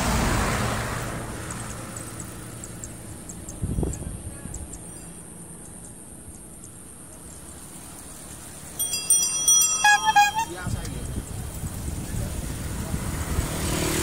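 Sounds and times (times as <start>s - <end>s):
road background noise: 0.0s - 14.0s
bicycle bell ringing: 8.6s - 11.6s.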